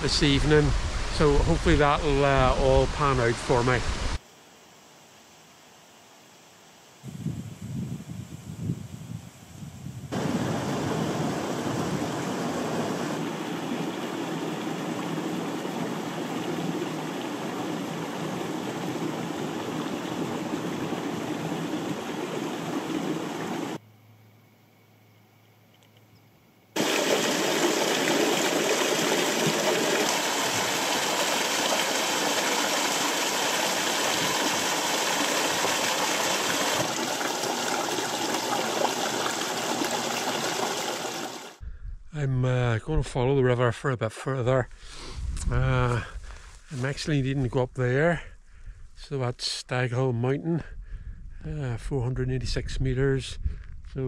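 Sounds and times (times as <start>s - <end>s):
stream rushing over rocks: 10.1s - 23.8s, 26.8s - 41.6s.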